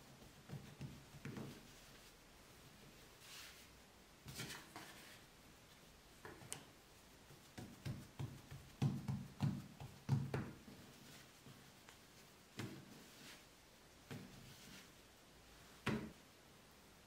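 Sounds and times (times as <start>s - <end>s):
light rustle and knock: 0.0s - 2.2s
patting dough on wooden board: 0.0s - 3.5s, 6.1s - 15.0s.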